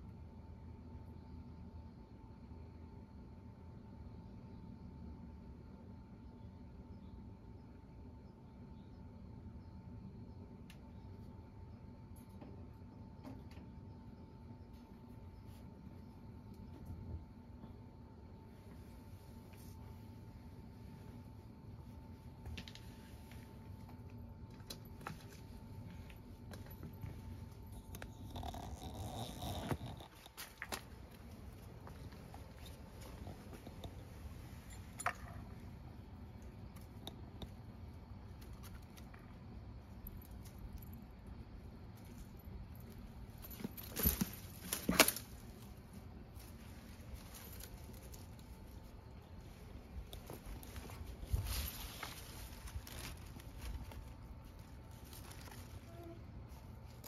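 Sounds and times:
leaves and stems rustling: 0:42.0 - 0:57.0.

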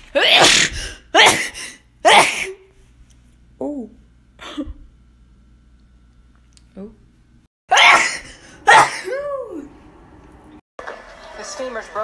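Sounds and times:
woman sneezing: 0:00.2 - 0:02.6, 0:07.7 - 0:09.2.

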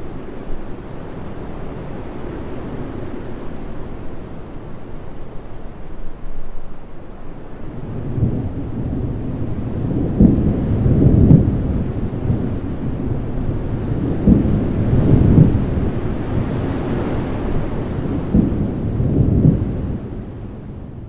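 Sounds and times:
rolling thunder: 0:07.6 - 0:21.0.

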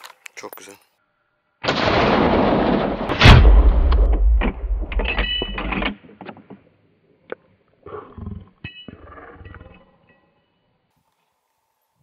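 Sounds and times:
rifle shot: 0:01.6 - 0:05.9.

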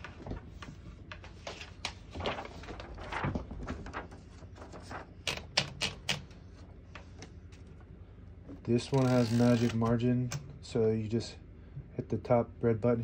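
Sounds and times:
paper rustling: 0:00.0 - 0:07.9, 0:08.8 - 0:10.0
typewriter platen ratcheting clicks: 0:08.9 - 0:10.4.

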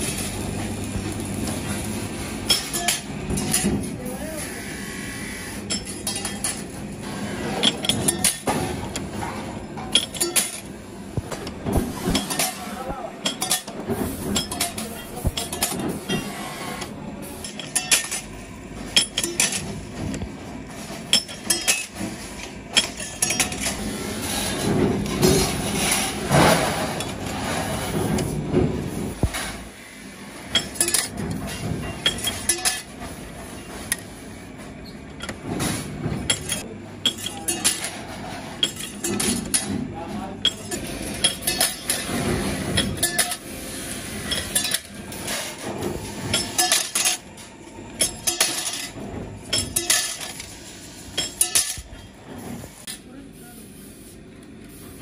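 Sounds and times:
steel sheets clinking: 0:01.0 - 0:04.0, 0:11.3 - 0:18.3, 0:40.4 - 0:43.5, 0:44.2 - 0:52.2.

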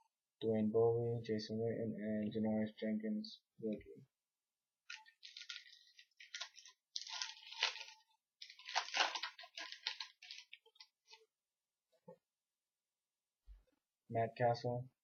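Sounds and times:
wrapper crinkling and tearing: 0:04.9 - 0:11.2.

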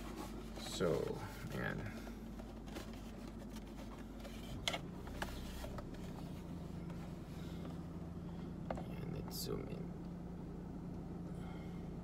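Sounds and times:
low steady hum: 0:00.0 - 0:12.0
plastic handling clicks and rubs: 0:02.3 - 0:07.1.

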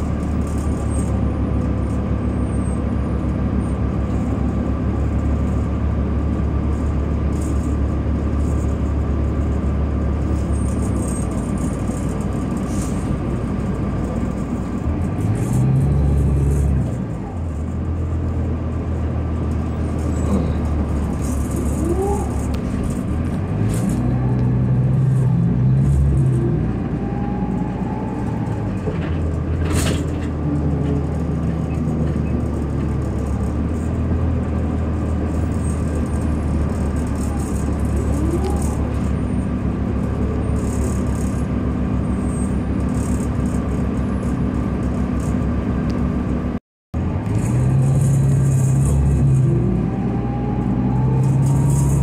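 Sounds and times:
bus engine drone from inside: 0:00.0 - 0:52.0.

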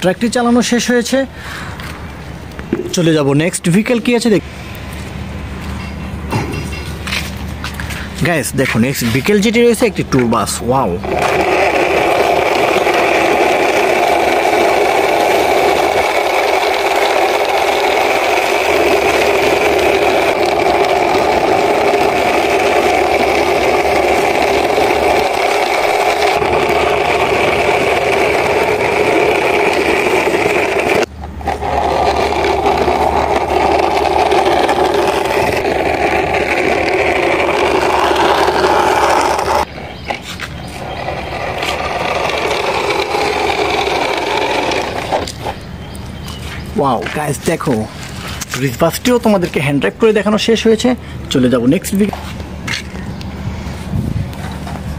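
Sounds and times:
toy wheels whirring rattle on concrete: 0:10.4 - 0:49.5.

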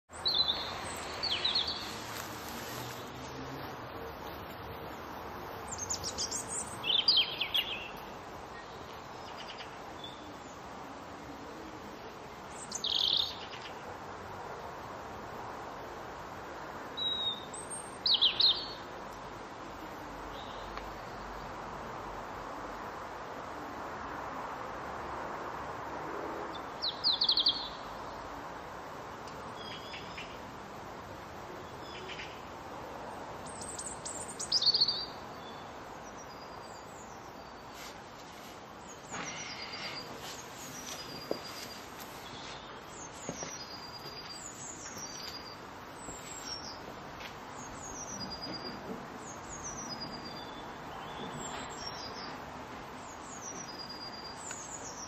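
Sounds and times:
faint outdoor hiss: 0:00.1 - 0:55.0.

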